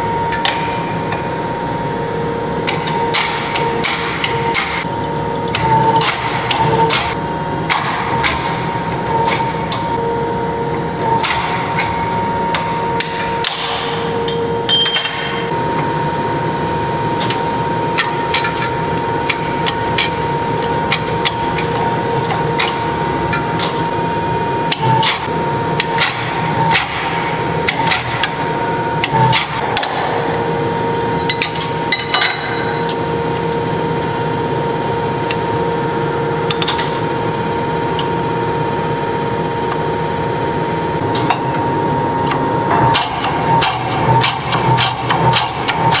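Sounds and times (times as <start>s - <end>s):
machine hum: 0.0s - 46.0s
power hammer striking hot steel: 2.6s - 4.9s, 5.5s - 10.0s, 11.1s - 33.0s, 41.1s - 46.0s.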